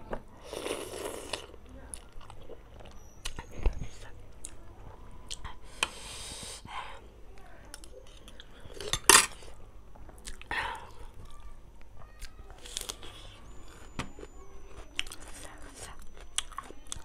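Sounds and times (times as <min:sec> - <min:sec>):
chewing and slurping noodles: 0:00.4 - 0:03.1.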